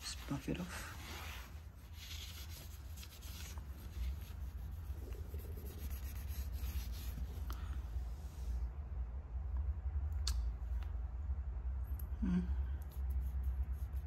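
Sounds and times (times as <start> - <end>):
cloth rubbing a metal wheel: 0.0 - 7.4
steady low rumble: 0.0 - 14.0.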